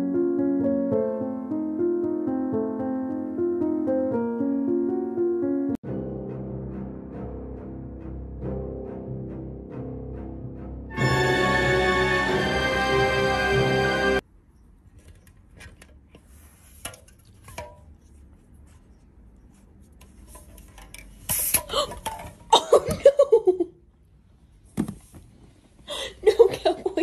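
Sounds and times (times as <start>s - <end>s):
person laughing: 22.5s - 23.8s, 25.9s - 27.0s.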